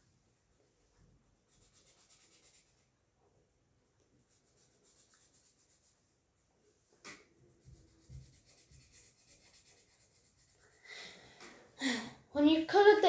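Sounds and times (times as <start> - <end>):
pen scratching on paper: 7.5 - 10.8.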